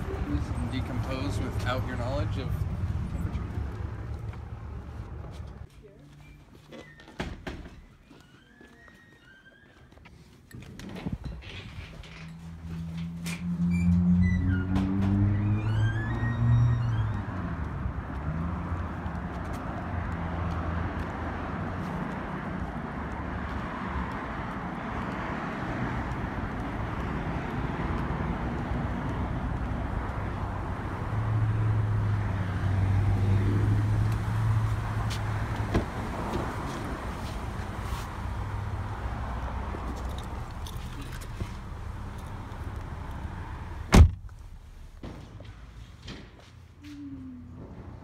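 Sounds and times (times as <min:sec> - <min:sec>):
car engines and tyre noise: 0:00.0 - 0:48.0
vehicle passing loudly: 0:12.4 - 0:43.8.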